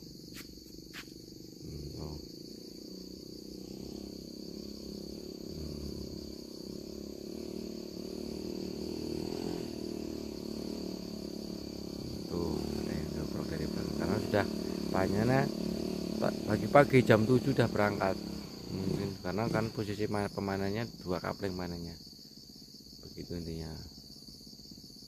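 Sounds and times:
insect chorus buzzing: 0.0s - 25.0s.

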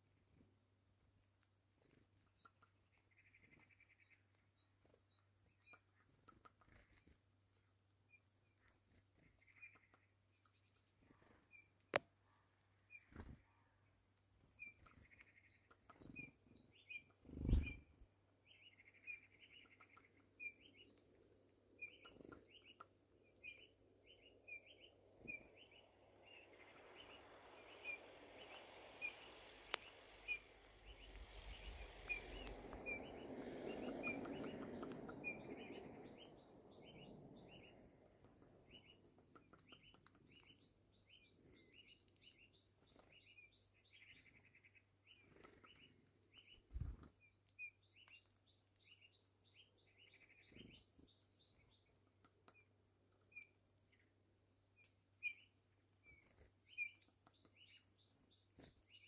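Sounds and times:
small bird chirping: 0.0s - 59.0s
soft rushing noise: 23.6s - 39.0s.

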